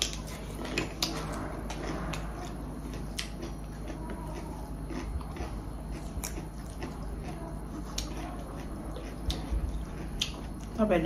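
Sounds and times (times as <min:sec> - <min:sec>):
person chewing food: 0:00.0 - 0:10.8.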